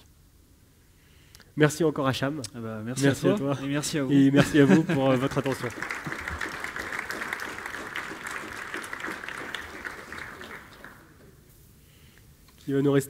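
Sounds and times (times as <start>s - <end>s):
audience applauding: 4.5s - 11.4s.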